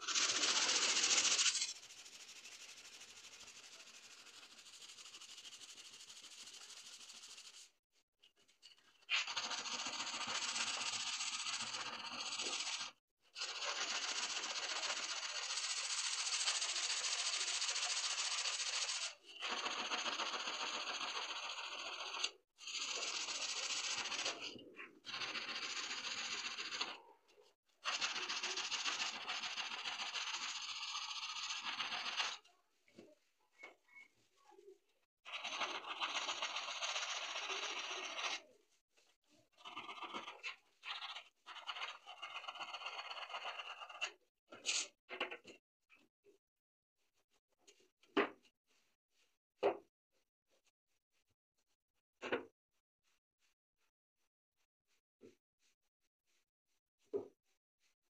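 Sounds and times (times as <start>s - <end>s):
abrasive block scraping saw blade: 0.0s - 7.6s, 8.8s - 27.0s, 27.8s - 32.5s, 35.3s - 38.5s.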